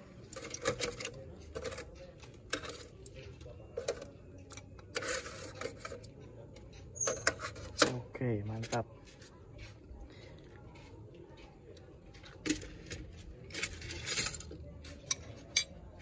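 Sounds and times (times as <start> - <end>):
plastic cup scraping metal pot: 4.8 - 8.0.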